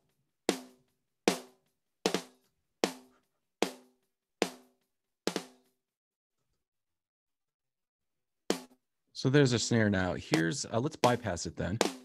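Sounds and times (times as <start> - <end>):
snare drum hits: 10.3 - 12.0.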